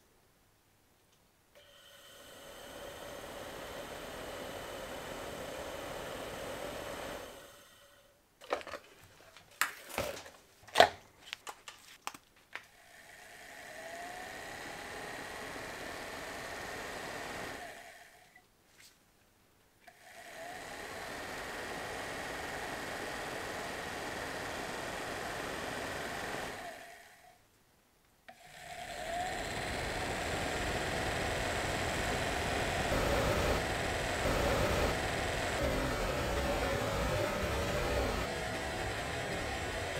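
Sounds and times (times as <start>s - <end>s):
blower whine spinning up: 1.7s - 7.9s, 20.4s - 27.0s, 28.7s - 39.9s
blower motor spinning down: 2.0s - 7.9s, 13.0s - 18.1s, 20.2s - 27.3s, 28.4s - 39.9s.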